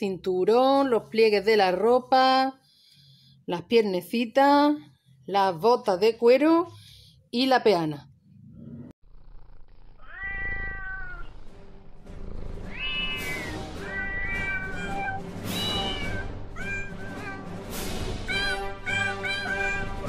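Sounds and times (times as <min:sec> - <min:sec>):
cat meowing: 0:10.0 - 0:11.4, 0:12.7 - 0:17.6, 0:18.3 - 0:20.0.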